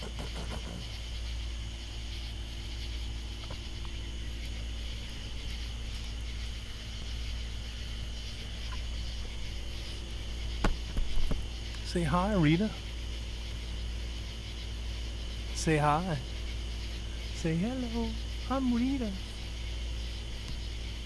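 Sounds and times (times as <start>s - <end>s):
katydids calling: 0.0s - 21.0s
low steady hum: 0.0s - 21.0s.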